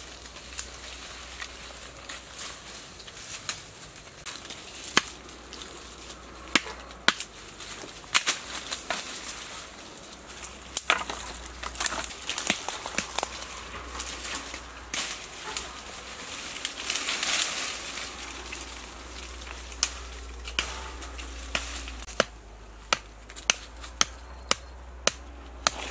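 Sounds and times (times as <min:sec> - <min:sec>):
twigs cracking and leaves rustling: 0:00.0 - 0:25.9
blade chopping woody stems: 0:04.3 - 0:09.5, 0:10.4 - 0:15.8, 0:16.9 - 0:25.9.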